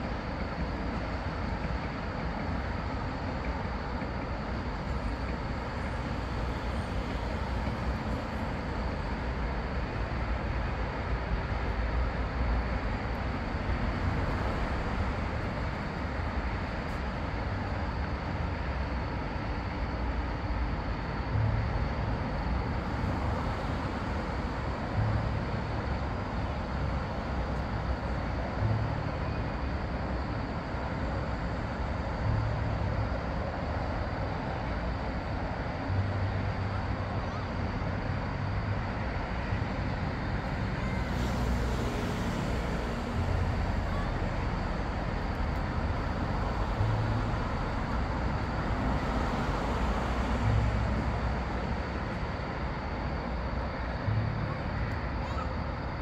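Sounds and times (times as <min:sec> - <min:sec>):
outdoor background rumble: 0:00.0 - 0:56.0.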